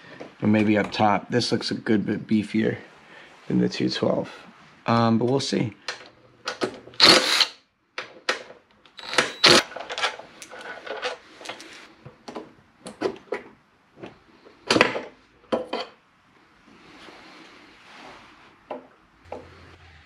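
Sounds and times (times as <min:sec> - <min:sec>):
cordless driver bursts: 0:07.0 - 0:07.6, 0:08.9 - 0:09.7
hand-tool clicks: 0:08.9 - 0:09.7.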